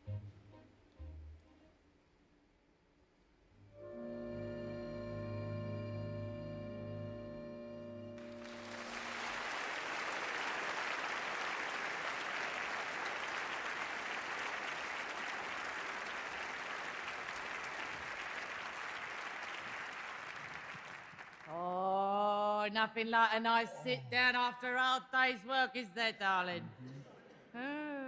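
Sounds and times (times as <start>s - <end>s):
audience applauding: 8.2s - 21.8s.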